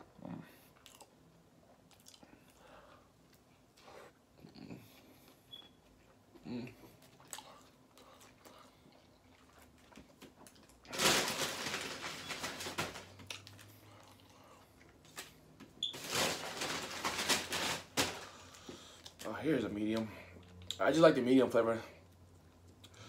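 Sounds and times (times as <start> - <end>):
person chewing: 0.5 - 10.9, 13.2 - 15.2
food wrappers crinkling: 9.3 - 19.3.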